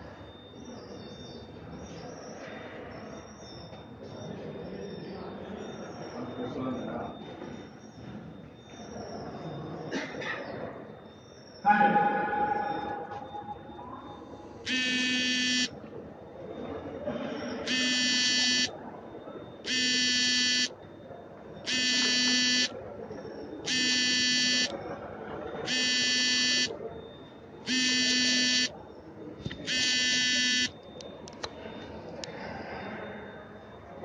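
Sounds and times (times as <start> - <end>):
steady background noise: 0.0 - 34.0
electronic buzzer tones: 14.7 - 15.8, 17.6 - 18.8, 19.7 - 20.8, 21.7 - 22.8, 23.7 - 24.8, 25.7 - 26.8, 27.7 - 28.8, 29.5 - 30.8.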